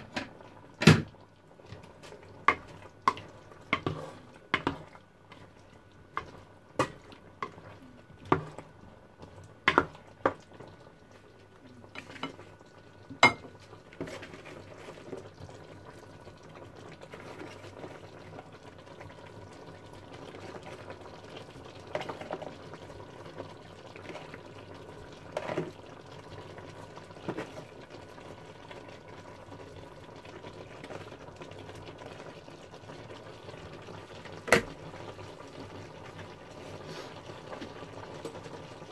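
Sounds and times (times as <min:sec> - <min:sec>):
vegetables hissing in a pan: 0:36.4 - 0:37.7.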